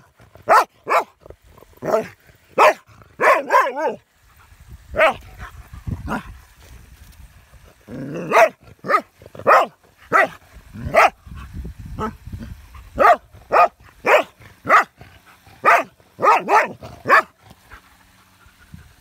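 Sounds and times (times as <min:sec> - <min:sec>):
dog barking: 0:00.0 - 0:01.1, 0:01.8 - 0:04.0, 0:08.3 - 0:11.2, 0:13.0 - 0:14.9, 0:15.6 - 0:17.4.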